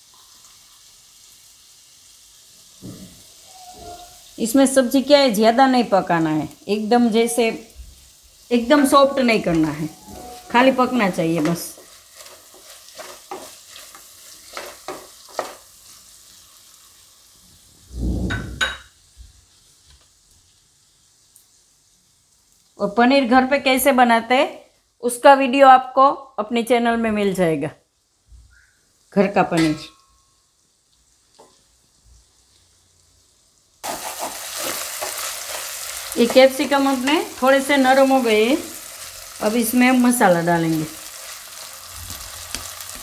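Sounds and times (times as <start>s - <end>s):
food sizzling in oil: 0.0s - 26.6s, 27.2s - 43.0s
spatula scraping pan: 9.6s - 15.6s, 33.8s - 37.0s.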